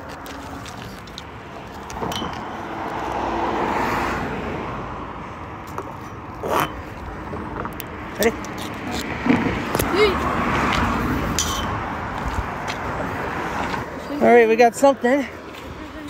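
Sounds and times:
road vehicle passing: 0:00.0 - 0:16.0.

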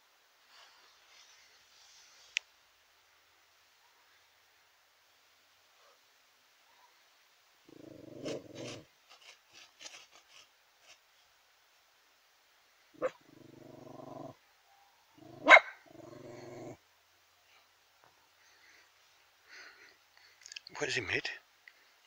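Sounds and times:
dog growling low: 0:07.7 - 0:08.8, 0:13.0 - 0:14.4, 0:15.2 - 0:16.8
sharp short bark: 0:15.4 - 0:15.8.

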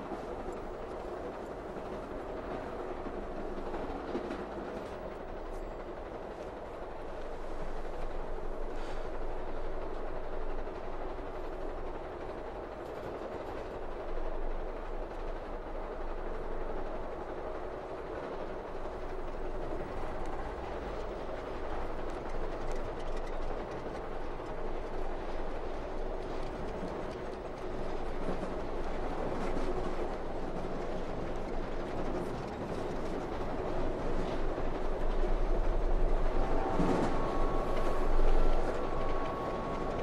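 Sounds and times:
train rumble inside carriage: 0:00.0 - 0:40.0.

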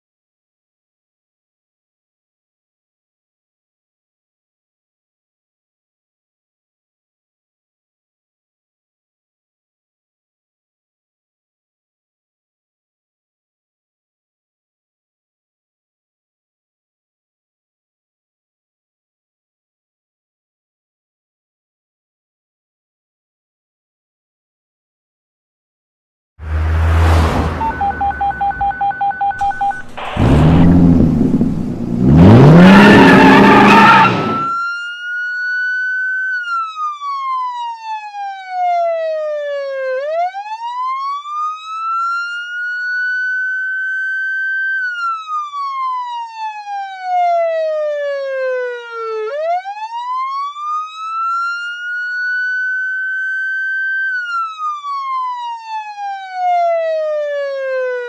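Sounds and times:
car engine revving: 0:26.4 - 0:34.5
police siren wailing: 0:26.5 - 0:58.0
rapid electronic beeps: 0:27.6 - 0:30.7, 0:32.9 - 0:34.6.

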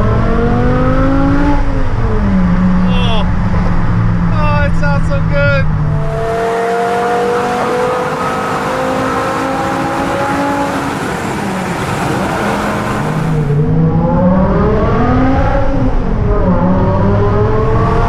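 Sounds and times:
car engine accelerating: 0:00.0 - 0:18.0.

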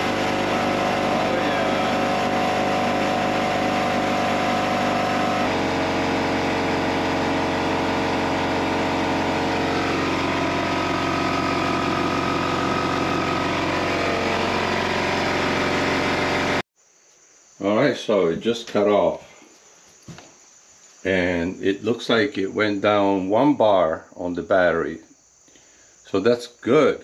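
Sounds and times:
air compressor running: 0:00.0 - 0:16.6.

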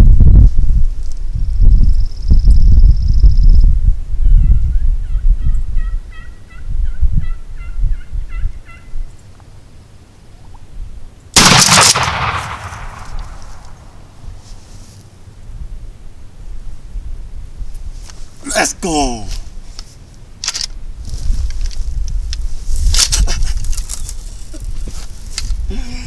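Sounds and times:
turkey yelps: 0:04.4 - 0:08.9
shotgun blast: 0:11.4 - 0:14.0.

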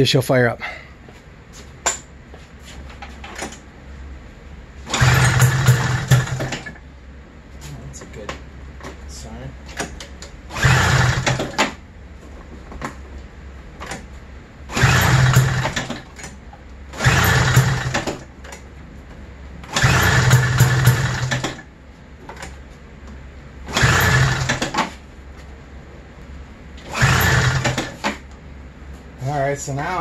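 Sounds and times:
engine turning over without catching: 0:04.8 - 0:06.8, 0:10.5 - 0:11.8, 0:14.7 - 0:18.3, 0:19.6 - 0:21.7, 0:23.7 - 0:25.0, 0:26.8 - 0:28.3.

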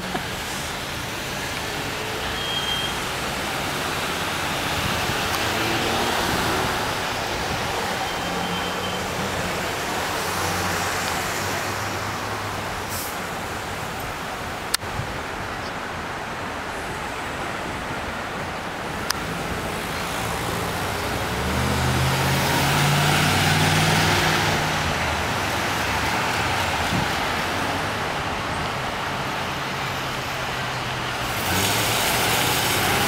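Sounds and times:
cars driving past: 0:00.0 - 0:13.9, 0:19.1 - 0:33.0
pickup truck passing: 0:19.4 - 0:33.0.

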